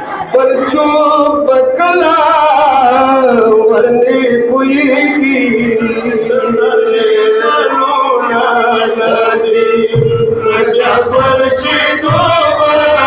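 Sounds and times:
male voices chanting a lament: 0.0 - 13.0
deep drum beat: 9.7 - 13.0.

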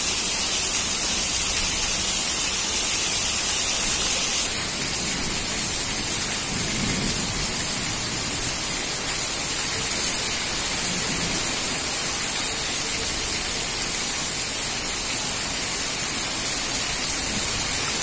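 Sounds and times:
heavy rain pouring: 0.0 - 18.0.

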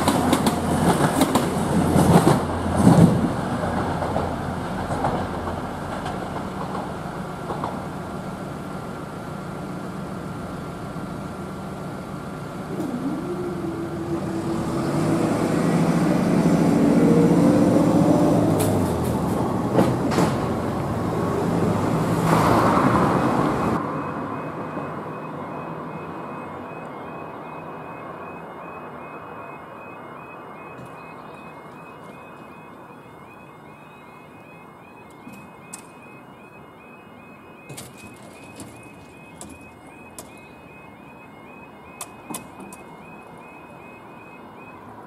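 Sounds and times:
level crossing alarm: 0.0 - 2.6, 12.1 - 45.0
wheels clicking over rail joints: 0.0 - 8.1, 18.5 - 21.0, 37.6 - 40.7
train engines whining: 0.0 - 45.0.

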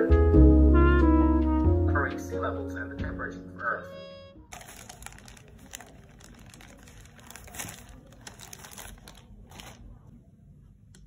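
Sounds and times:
plastic bag crinkling: 4.5 - 10.1.

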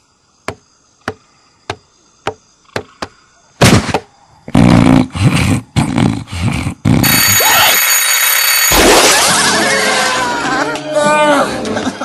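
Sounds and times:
cartoon snoring: 4.5 - 7.2.

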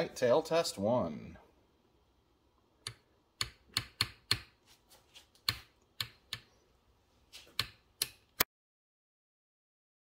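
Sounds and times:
sharp clicks and snaps: 7.6 - 8.5.

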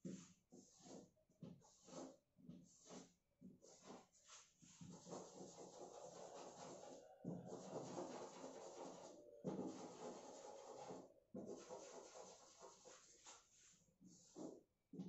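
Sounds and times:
chalk scratching on blackboard: 0.0 - 14.6.

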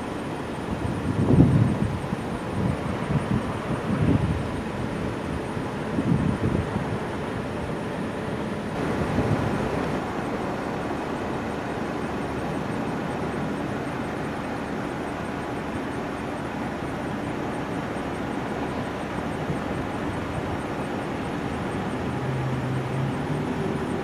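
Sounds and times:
jet airliner engines: 0.0 - 24.0.

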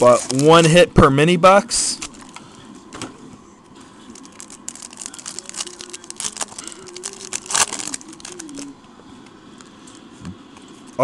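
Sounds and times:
foil wrapper crinkling and tearing: 0.0 - 0.8, 4.1 - 8.8.

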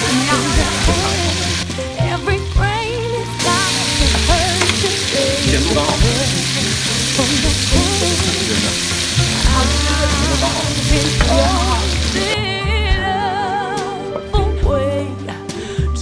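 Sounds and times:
food sizzling in frying pan: 0.0 - 2.6, 3.3 - 12.4
song with singer: 0.0 - 16.0.

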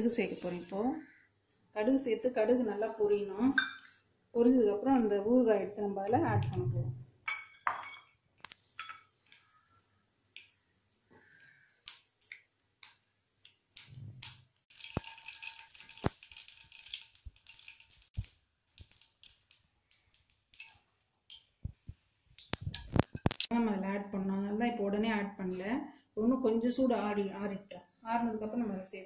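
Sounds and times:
oil sizzling: 0.0 - 0.8, 13.5 - 23.5
seeds popping in hot oil: 11.3 - 23.5.

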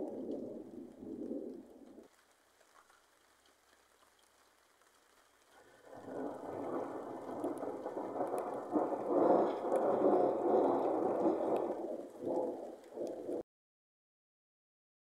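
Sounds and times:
rolling thunder: 0.0 - 2.0, 5.8 - 13.4.

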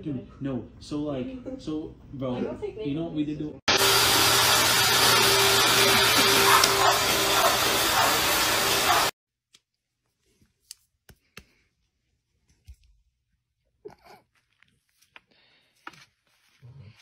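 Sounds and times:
vacuum cleaner running: 3.7 - 9.2.

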